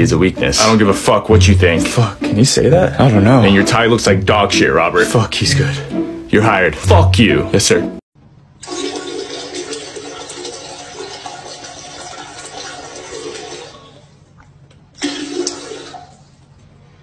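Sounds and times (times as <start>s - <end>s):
liquid splashing into toilet bowl: 8.6s - 16.3s.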